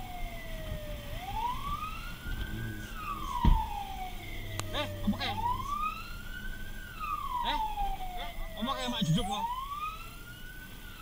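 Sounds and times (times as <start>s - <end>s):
engine and road rumble: 0.0s - 11.0s
fire truck siren wailing: 0.0s - 11.0s
low thump: 3.3s - 3.9s.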